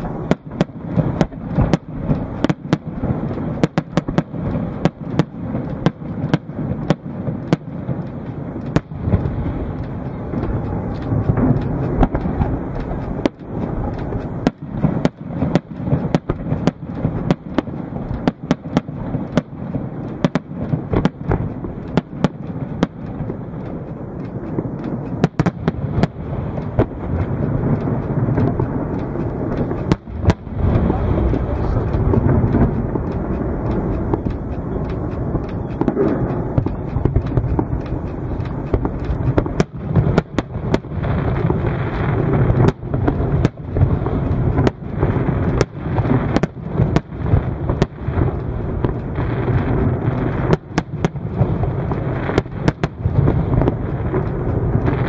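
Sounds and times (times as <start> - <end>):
low rumble: 0.0 - 18.3, 18.9 - 55.0
firework bangs and cracks: 0.0 - 55.0.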